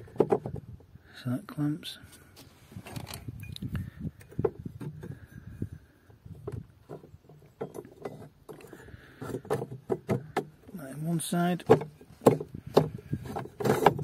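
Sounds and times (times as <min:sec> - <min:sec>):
metal knocks and clicks: 0:06.4 - 0:10.7, 0:11.6 - 0:14.0.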